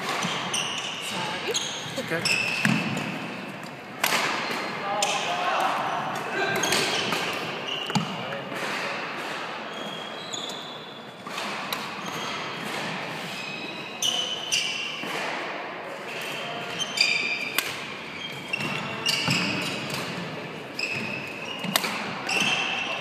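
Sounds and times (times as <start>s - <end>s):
racket hitting shuttlecock: 0.0s - 0.7s, 4.0s - 9.6s, 11.2s - 13.2s, 15.0s - 15.6s, 17.4s - 20.3s, 20.9s - 22.7s
shoes squeaking on wooden floor: 0.0s - 3.3s, 6.6s - 8.4s, 9.7s - 11.0s, 18.0s - 20.0s, 20.7s - 23.0s.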